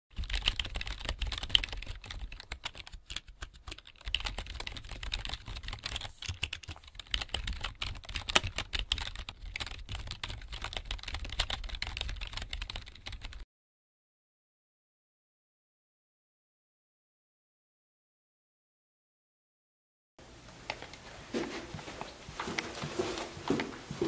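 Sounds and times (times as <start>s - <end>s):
rapid typing on keyboard: 0.1s - 13.4s.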